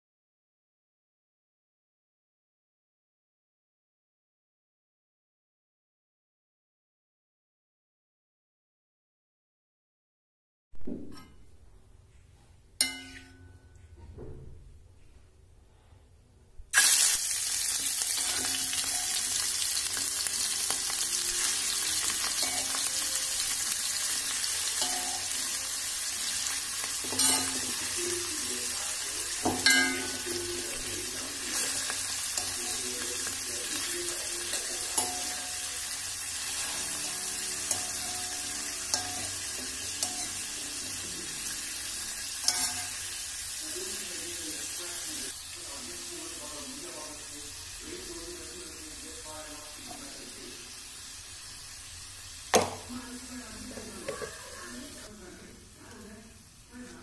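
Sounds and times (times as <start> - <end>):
meat sizzling in oil: 16.7 - 57.0.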